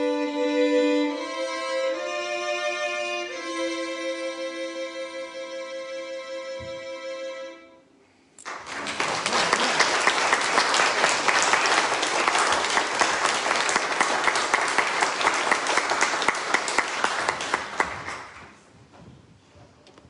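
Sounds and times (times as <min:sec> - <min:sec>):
audience applauding: 0:08.4 - 0:18.6.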